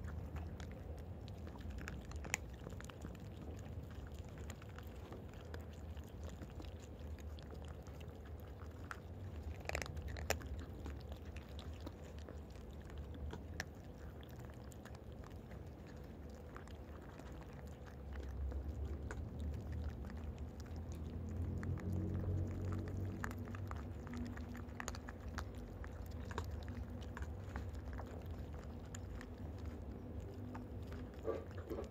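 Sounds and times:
cats crunching dry food: 0.0 - 31.9
low rumble: 18.1 - 31.9.

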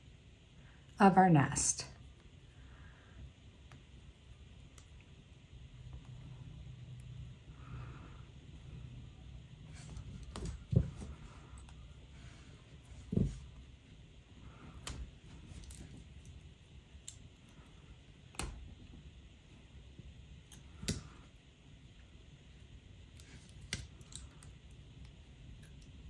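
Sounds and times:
low room hum: 0.0 - 26.0
pliers clicking on fine wire: 14.8 - 16.4, 17.0 - 18.7, 20.4 - 21.3, 23.1 - 26.0.

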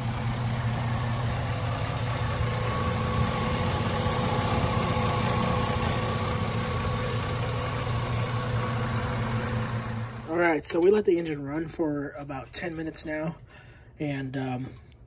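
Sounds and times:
car engine idling: 0.0 - 10.8.

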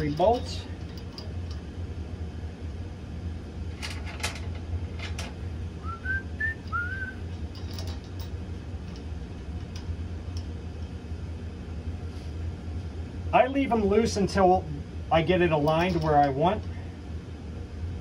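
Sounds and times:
low machinery hum: 0.0 - 18.0
rising whistle-like notes: 5.8 - 7.2.

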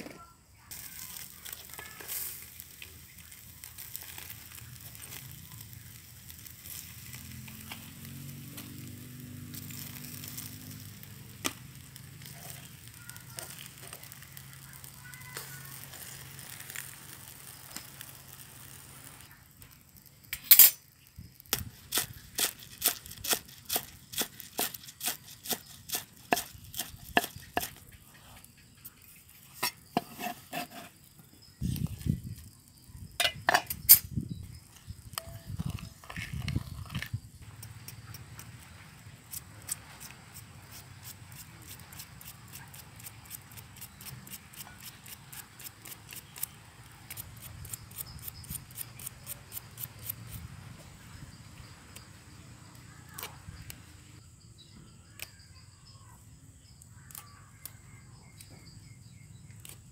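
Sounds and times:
fish sizzling on a grill: 0.5 - 36.8, 37.4 - 53.2
metal tongs scraping: 20.3 - 20.8, 29.5 - 31.0.

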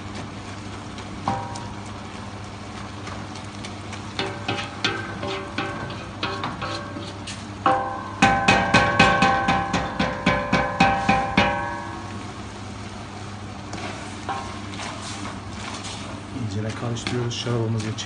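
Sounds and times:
stirring onions: 0.0 - 12.2, 13.2 - 18.0
wooden spoon knocking metal pot: 1.3 - 1.8, 4.2 - 7.0, 7.6 - 12.1.

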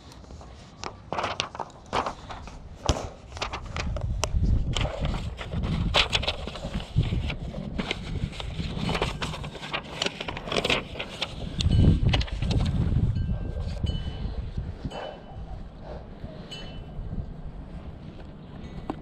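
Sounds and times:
paper rustling and crackling: 0.0 - 13.0
wind buffeting microphone: 1.9 - 19.0.

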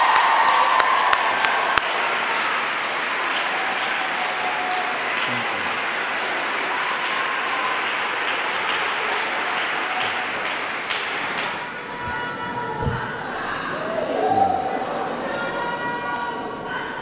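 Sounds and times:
audience applauding: 0.0 - 15.3
voices calling out: 11.6 - 17.0.

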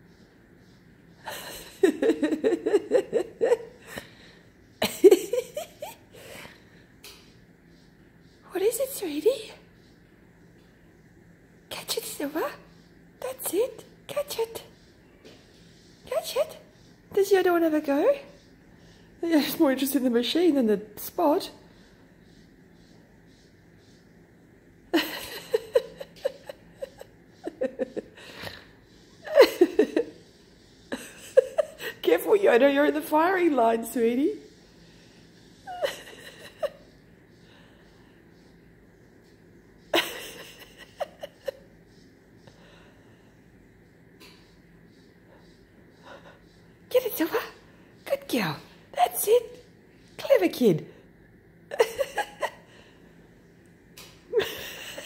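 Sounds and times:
woman laughing: 1.2 - 4.2, 4.8 - 6.4, 24.9 - 28.6, 29.2 - 30.2, 30.9 - 33.2, 35.6 - 36.9, 39.9 - 41.7, 51.7 - 52.7, 54.3 - 55.0
woman giggling: 1.2 - 6.4, 24.9 - 30.3, 30.9 - 33.6, 35.6 - 36.9, 39.9 - 41.8, 51.7 - 52.7, 54.3 - 55.0.

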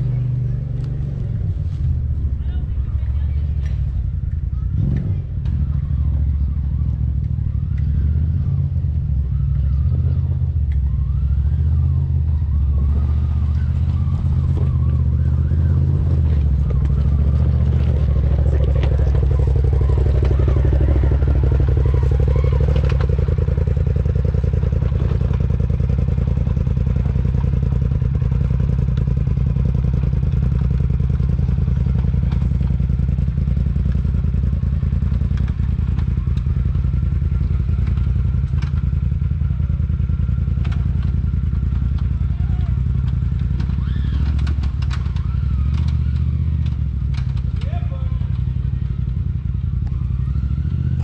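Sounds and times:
utility vehicle engine running: 0.0 - 51.0
vehicle knocks and rattles: 42.9 - 48.4.

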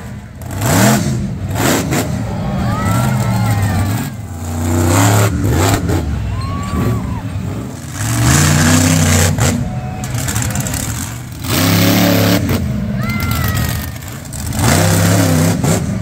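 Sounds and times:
monster truck engines revving: 0.0 - 16.0.

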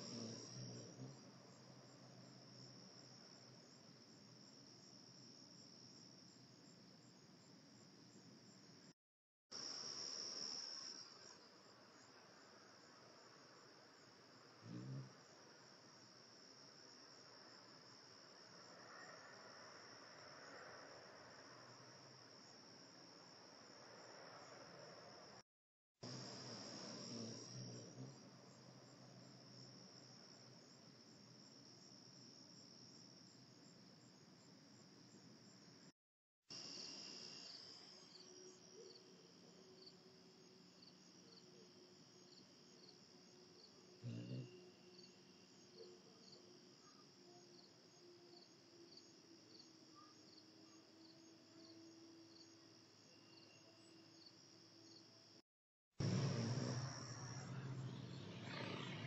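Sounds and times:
insects trilling: 0.0 - 4.6, 26.0 - 31.6, 36.5 - 55.0, 56.0 - 59.0.

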